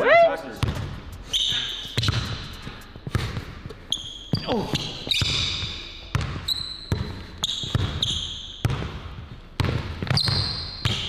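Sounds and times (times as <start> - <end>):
sneakers squeaking on court: 0.6 - 11.0
basketball bouncing on hardwood: 4.3 - 11.0.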